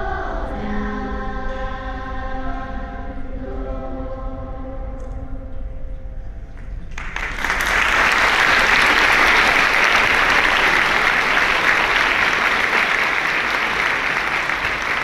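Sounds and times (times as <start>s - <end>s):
audience applause: 6.9s - 15.0s.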